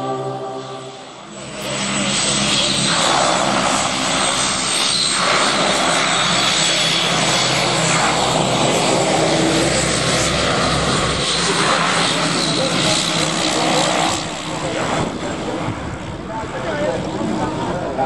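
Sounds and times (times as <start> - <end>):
thin high whine: 0.0 - 5.5
turboprop engines running: 0.0 - 18.0.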